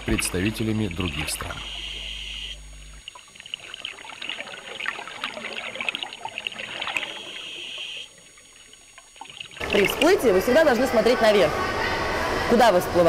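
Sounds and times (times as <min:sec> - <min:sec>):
underwater bubbling: 0:00.0 - 0:11.0
steady hum: 0:00.0 - 0:13.0.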